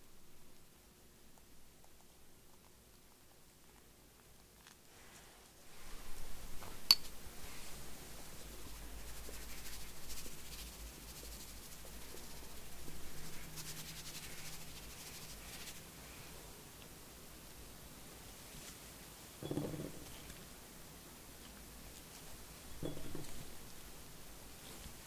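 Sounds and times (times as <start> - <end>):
powder sifting through a sieve: 7.3 - 16.4.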